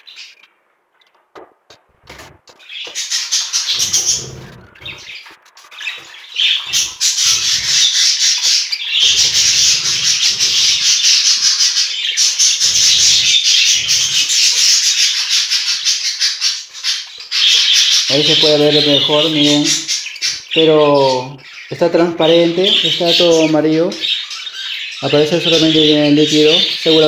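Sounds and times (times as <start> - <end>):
low rubbing noises: 1.9 - 2.8, 3.6 - 8.2, 8.9 - 11.8, 12.4 - 14.5
budgerigars chattering: 2.0 - 27.0.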